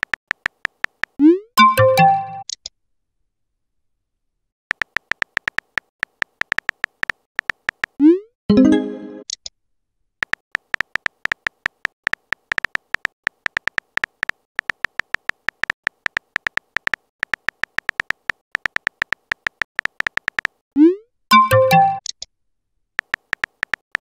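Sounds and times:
phone keyboard typing clicks: 0.0s - 1.2s, 4.7s - 8.0s, 10.2s - 20.6s, 23.0s - 24.0s.

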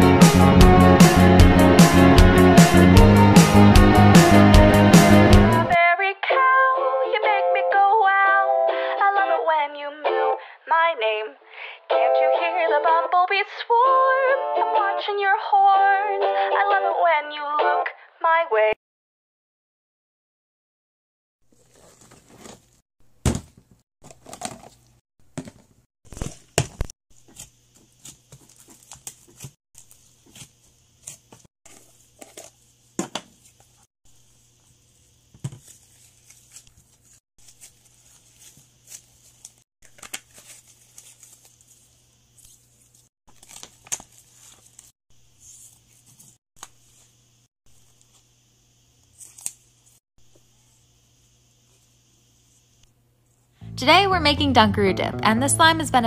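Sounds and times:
plastic tubs clicking and crinkling: 23.3s - 26.9s.

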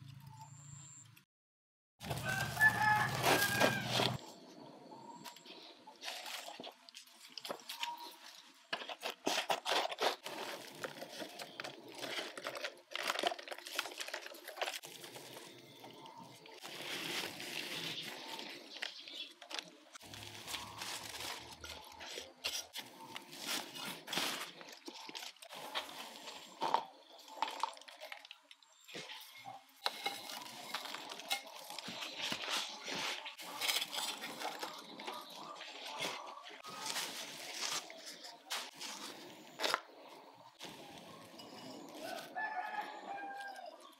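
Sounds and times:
soil crumbling: 2.0s - 4.2s, 6.0s - 40.0s
plastic pot crinkling: 6.0s - 39.9s.

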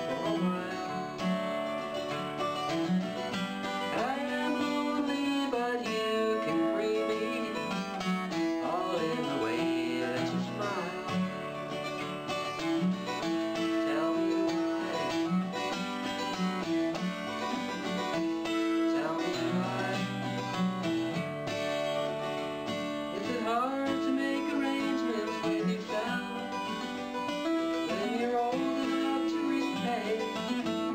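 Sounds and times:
acoustic guitar country tune: 0.0s - 30.9s.

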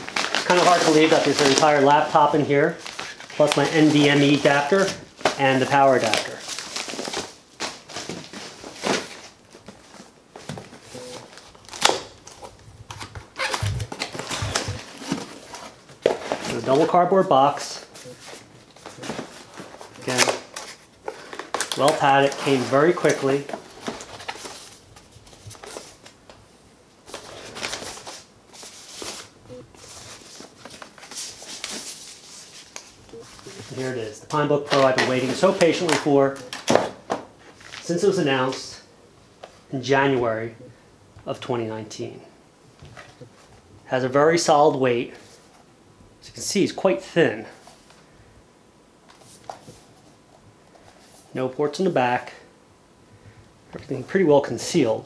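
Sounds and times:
foam and fabric rustling on cardboard: 0.0s - 5.4s
cardboard rustling and scraping: 0.0s - 17.0s, 17.8s - 26.1s, 27.1s - 37.0s.

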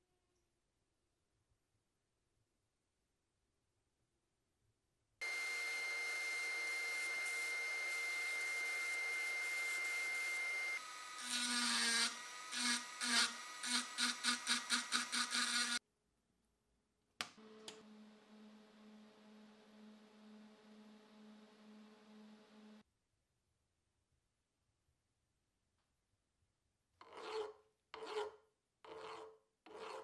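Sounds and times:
rotary tool grinding steel: 5.2s - 15.8s, 27.0s - 30.0s
welder low steady hum: 5.2s - 15.8s, 17.4s - 22.8s.

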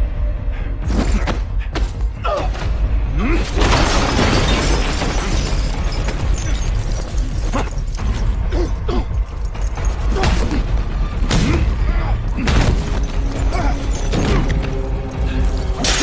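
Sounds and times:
crash with shattering: 3.5s - 8.2s, 15.6s - 16.0s.

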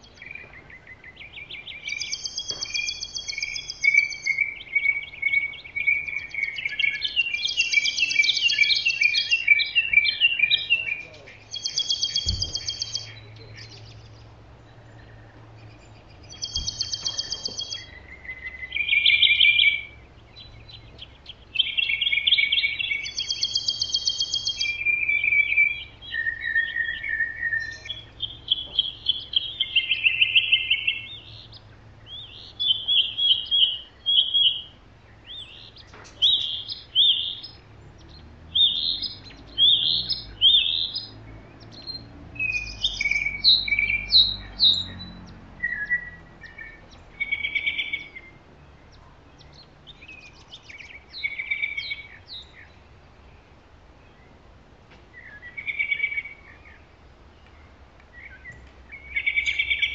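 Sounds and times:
songbirds singing: 0.0s - 59.9s.

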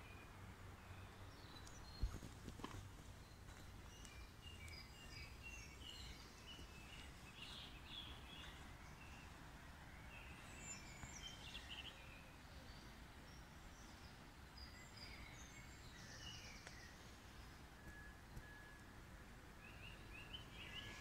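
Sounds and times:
birds chirping and trilling: 3.1s - 17.7s, 19.6s - 21.0s.

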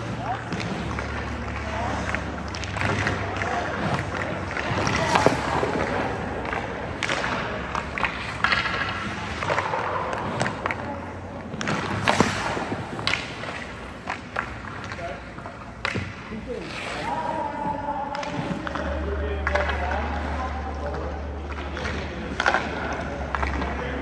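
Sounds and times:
hockey stick striking puck: 0.0s - 16.3s, 18.1s - 23.8s
skate blades scraping ice: 0.0s - 17.6s
pucks hitting goalie pads: 0.0s - 24.0s.

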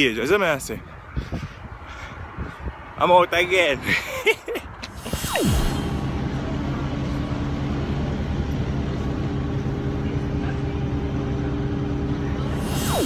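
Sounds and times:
bus engine drone: 4.2s - 13.0s.

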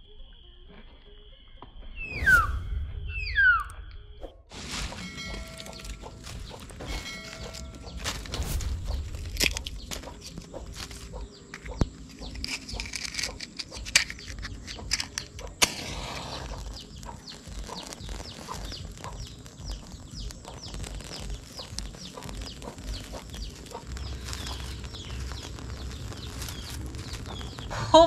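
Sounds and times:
match strike hiss: 4.6s - 27.8s
bird chirps: 4.9s - 28.0s
sticks snapping and clicking: 5.6s - 19.6s.

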